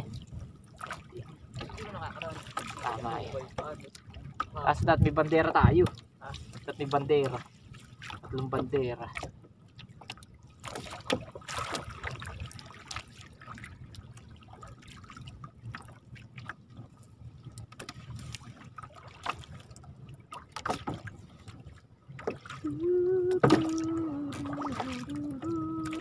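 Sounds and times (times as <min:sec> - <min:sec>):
water dripping and splashing: 0:00.0 - 0:04.6, 0:05.3 - 0:16.6, 0:17.4 - 0:21.5, 0:22.2 - 0:26.0
water lapping against hull: 0:00.0 - 0:26.0
knocks on boat: 0:23.3 - 0:23.9.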